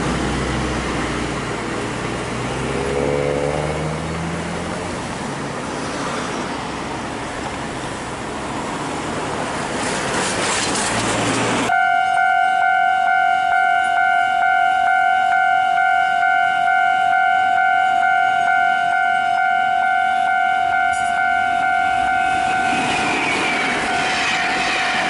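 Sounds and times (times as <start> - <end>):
outdoor noise rush: 0.0 - 11.8, 20.9 - 25.0
level crossing warning alarm: 11.7 - 24.5.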